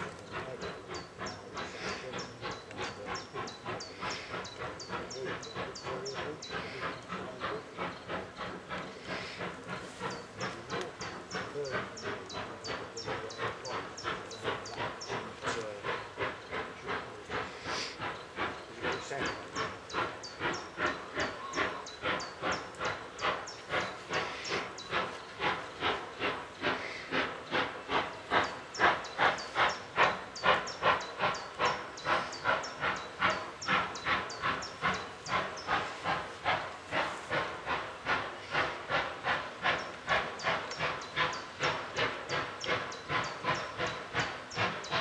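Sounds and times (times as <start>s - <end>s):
steam locomotive exhaust chuffing: 0.0s - 45.0s.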